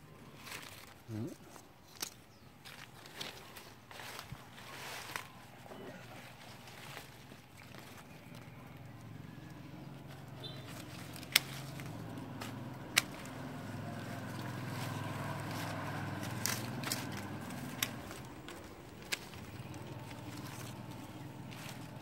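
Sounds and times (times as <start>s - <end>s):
low engine hum: 2.6s - 22.0s
pruning shears snipping stems: 9.5s - 22.0s.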